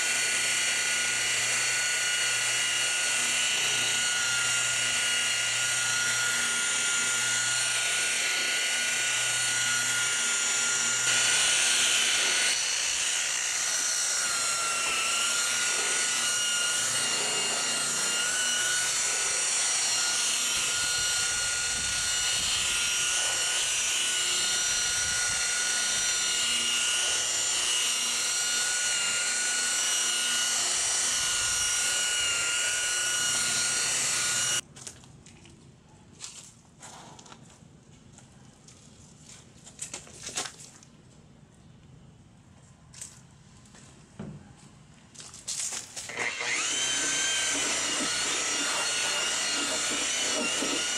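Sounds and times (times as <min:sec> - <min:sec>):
electric polisher whining: 0:00.0 - 0:34.6, 0:46.1 - 0:50.9.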